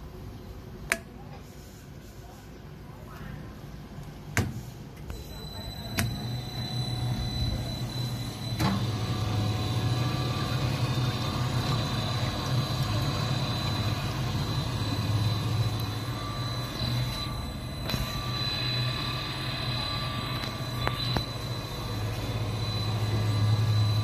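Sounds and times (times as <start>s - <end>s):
electric pump humming: 5.1s - 24.0s.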